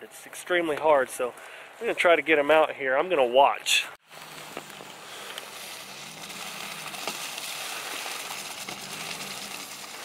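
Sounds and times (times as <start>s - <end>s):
truck engine hum: 4.0s - 10.0s
tyres hissing through mud: 4.1s - 10.0s.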